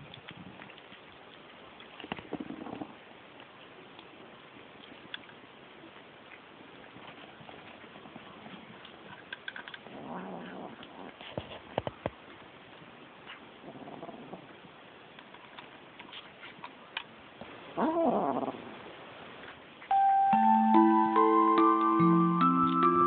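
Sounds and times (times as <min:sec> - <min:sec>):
kitten crunching dry food: 0:00.0 - 0:17.2
cat growling low: 0:02.2 - 0:03.0, 0:09.8 - 0:11.3, 0:13.6 - 0:14.6, 0:17.8 - 0:18.9.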